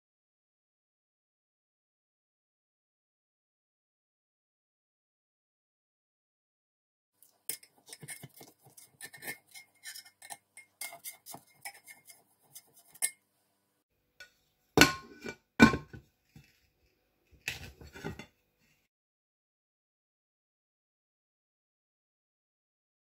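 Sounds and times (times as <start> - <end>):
knife scraping metal pot: 7.4 - 13.2, 14.2 - 16.6, 17.4 - 18.4
plate knocking on cooker: 14.8 - 16.0.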